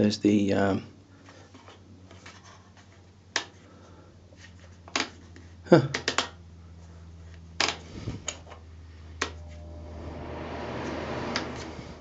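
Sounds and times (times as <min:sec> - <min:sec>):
heater fan blowing air: 0:07.8 - 0:08.4, 0:09.2 - 0:12.0.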